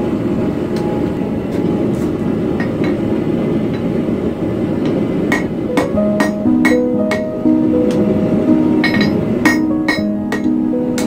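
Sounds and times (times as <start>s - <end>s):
hammer strikes on hot steel: 5.3s - 7.3s, 8.8s - 11.0s.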